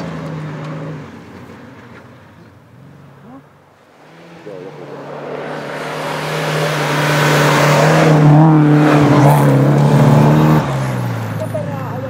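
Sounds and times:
rally car engine at high revs: 2.7 - 11.9.

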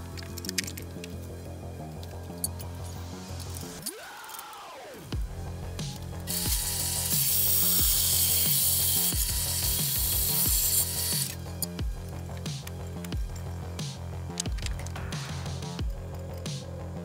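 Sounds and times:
background music with beat: 0.0 - 17.0
bandsaw cutting metal: 5.8 - 11.8.

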